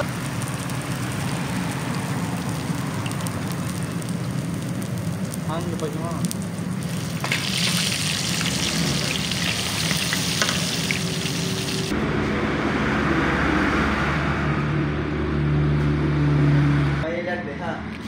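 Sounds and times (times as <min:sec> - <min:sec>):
fish sizzling in hot oil: 0:00.0 - 0:11.9.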